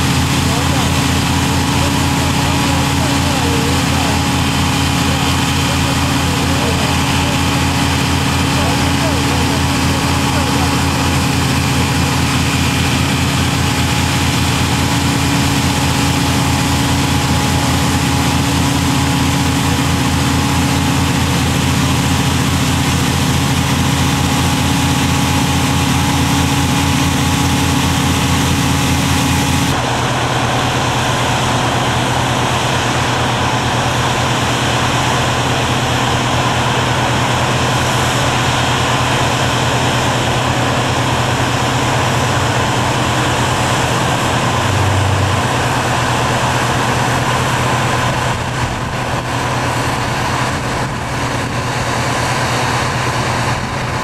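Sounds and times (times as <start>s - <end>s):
heavy machinery engine droning: 0.0s - 54.0s.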